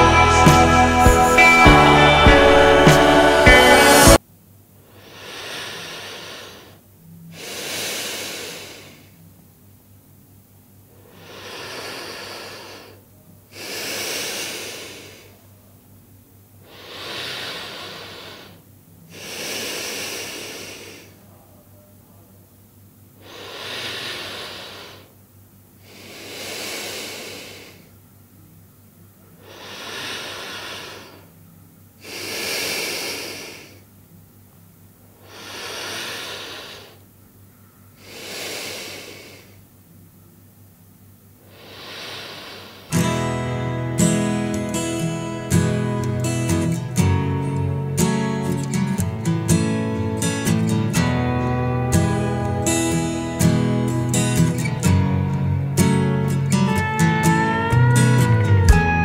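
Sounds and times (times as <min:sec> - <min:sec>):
person breathing slowly: 0:04.9 - 0:09.2, 0:11.0 - 0:15.4, 0:16.6 - 0:21.2, 0:23.2 - 0:25.1, 0:25.8 - 0:28.0, 0:29.4 - 0:31.3, 0:32.0 - 0:33.9, 0:35.2 - 0:37.0, 0:37.9 - 0:39.6, 0:41.4 - 0:43.0.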